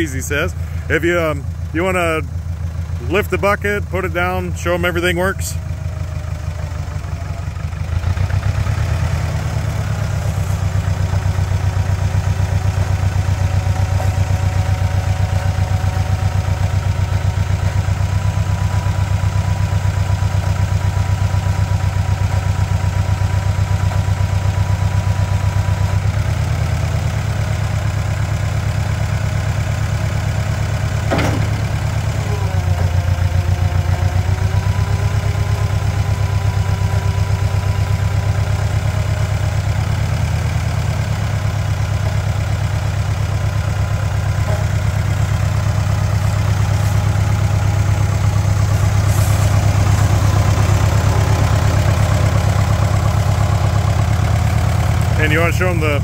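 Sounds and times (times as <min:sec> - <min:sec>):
tractor engine running: 0:00.0 - 0:56.0
metal clank: 0:31.0 - 0:32.1.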